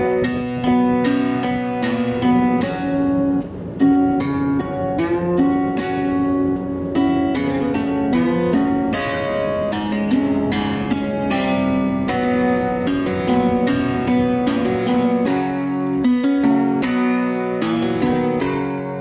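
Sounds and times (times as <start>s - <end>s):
strummed and plucked guitar: 0.0s - 19.0s.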